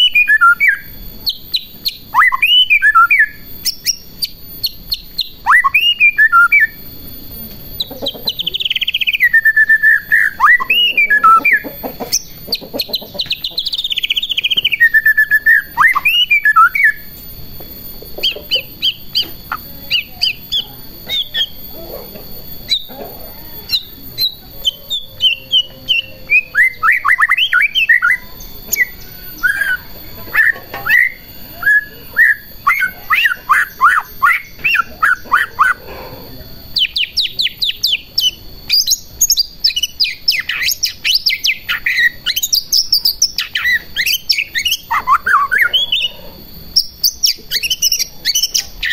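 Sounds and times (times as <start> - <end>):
songbird whistling song: 0.0 - 48.9.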